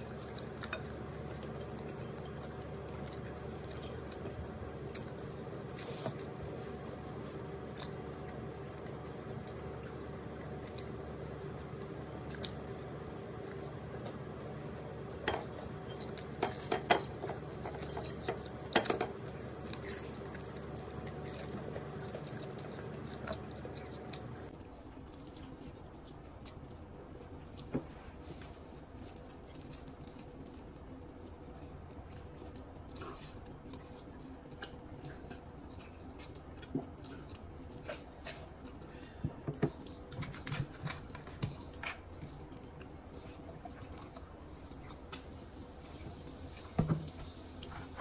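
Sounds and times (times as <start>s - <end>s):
chewing and mouth sounds: 0.0s - 48.0s
steady background hum: 0.0s - 48.0s.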